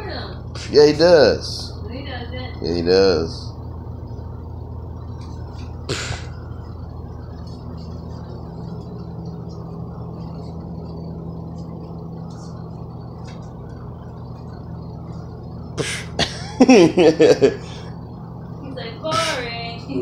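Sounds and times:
steady low hum: 0.0s - 20.0s
breathy puffs of air: 15.8s - 16.2s.

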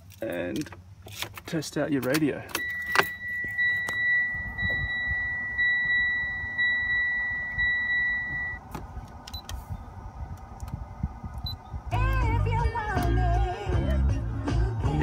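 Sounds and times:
high warning beep: 2.6s - 8.6s.

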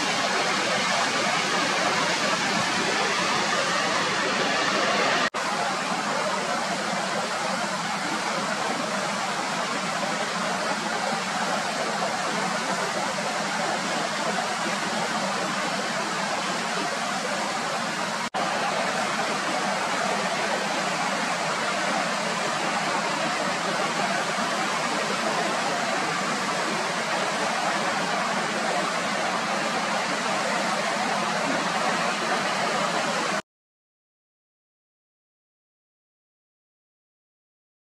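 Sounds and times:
stream rushing over boulders: 0.0s - 33.4s.

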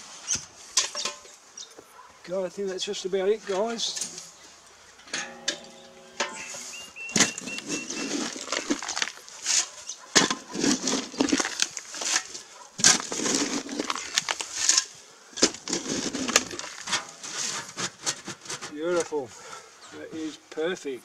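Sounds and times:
dry soil scraped with plastic container: 6.4s - 14.9s, 15.5s - 19.2s.

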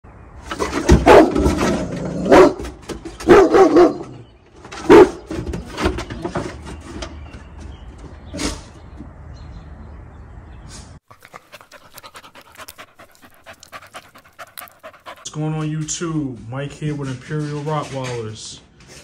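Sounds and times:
dog barking deeply: 0.8s - 4.2s, 4.8s - 5.3s.

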